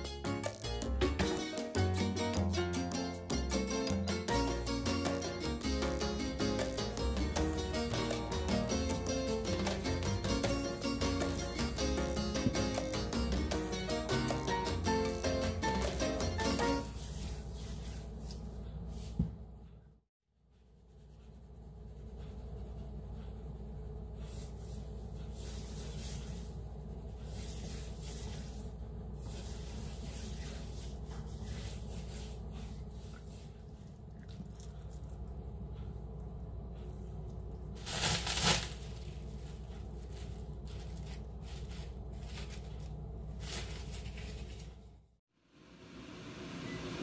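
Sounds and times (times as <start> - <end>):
hands rubbing spice onto meat: 24.2 - 33.8.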